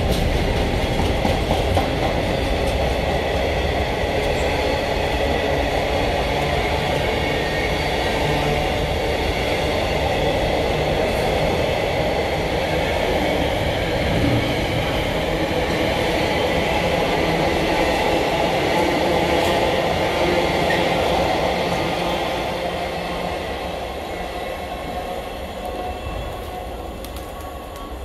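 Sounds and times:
diesel train engine and rail noise: 0.0s - 28.0s.

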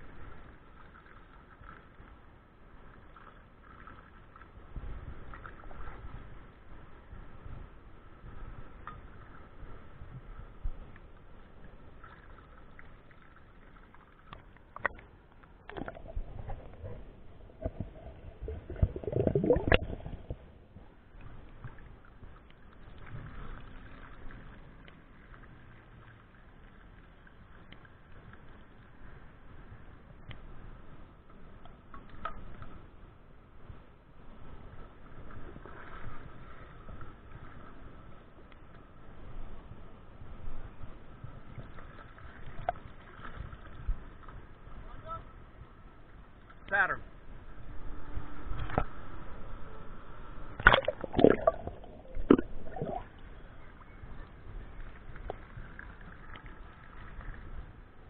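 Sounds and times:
water gurgling and sloshing: 0.0s - 58.0s.

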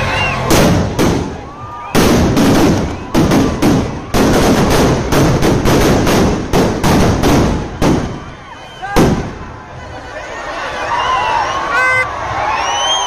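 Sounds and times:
firecrackers banging: 0.2s - 9.8s.

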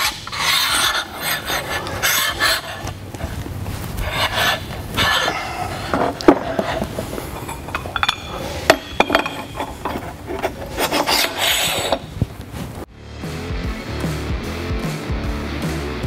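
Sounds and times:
metal collars sliding on metal bar: 0.0s - 3.4s, 4.0s - 12.2s
metal clinks and knocks: 5.1s - 12.1s.

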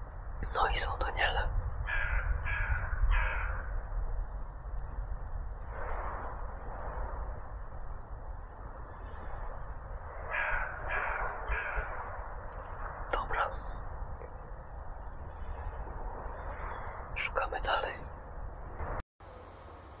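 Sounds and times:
crow cawing: 1.8s - 3.8s, 10.1s - 12.8s.

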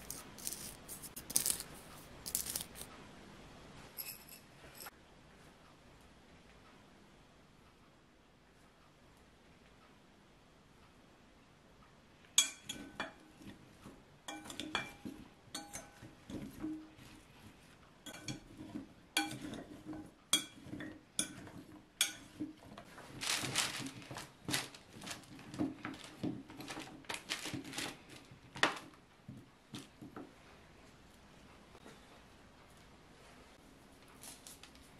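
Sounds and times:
vegetable pieces rustling: 0.0s - 2.9s, 22.3s - 29.0s
metal spoon clinking on glass bowl: 4.0s - 4.9s, 12.4s - 13.2s, 14.3s - 16.1s, 18.0s - 18.6s, 19.2s - 19.6s, 20.3s - 22.4s.

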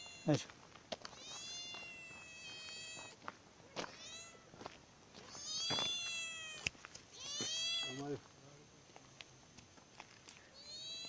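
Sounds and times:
cat meowing: 1.1s - 4.6s, 5.2s - 8.0s, 10.6s - 11.0s.

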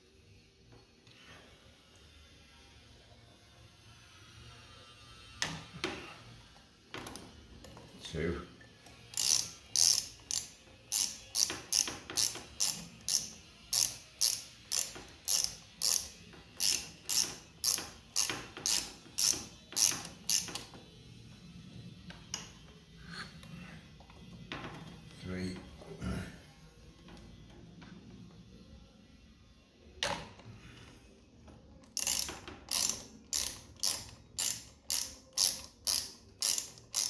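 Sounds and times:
socket ratchet wrench clicking: 9.1s - 20.6s, 31.8s - 37.0s.

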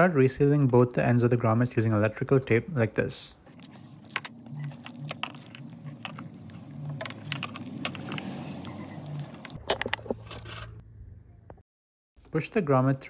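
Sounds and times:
rustles and clicks of handling: 3.5s - 10.8s.

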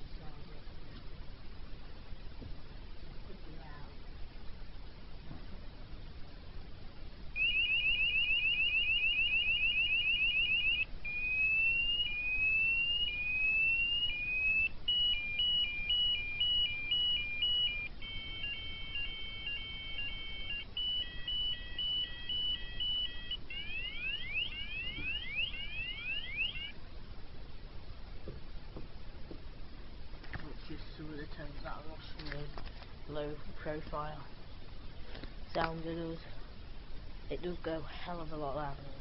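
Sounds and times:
electronic fire alarm tones: 7.4s - 26.8s.

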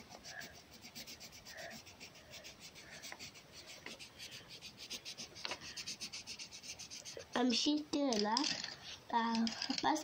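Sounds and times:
felt-tip pen scribbling on paper: 0.0s - 7.3s.

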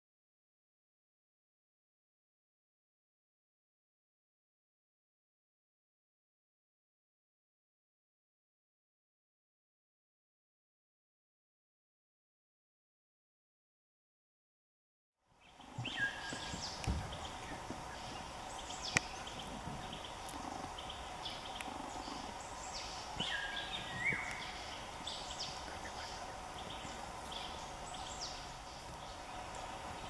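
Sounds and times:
steady background hum: 15.4s - 30.0s
birds whistling: 15.6s - 30.0s
low thump: 15.8s - 17.7s.

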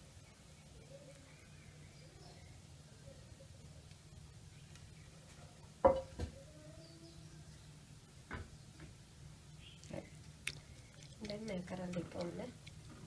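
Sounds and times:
crockery knocking: 5.8s - 6.3s.

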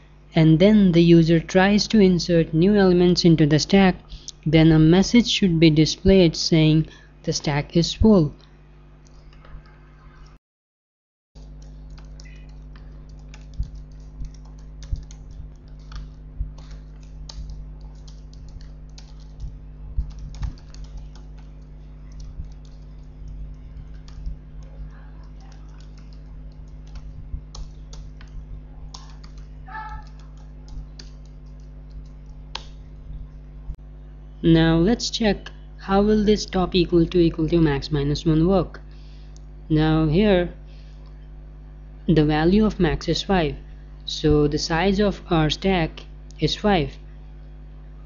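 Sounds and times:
low electrical hum: 0.0s - 10.4s, 11.4s - 48.0s
keyboard typing: 11.4s - 32.9s.

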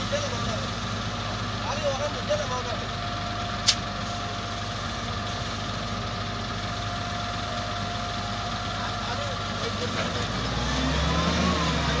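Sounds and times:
diesel engine running at low revs: 0.0s - 12.0s
sharp click: 3.6s - 3.8s.

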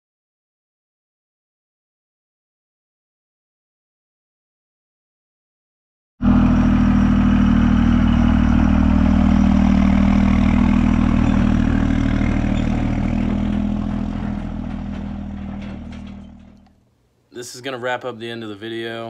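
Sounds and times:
diesel engine running: 6.2s - 16.7s.

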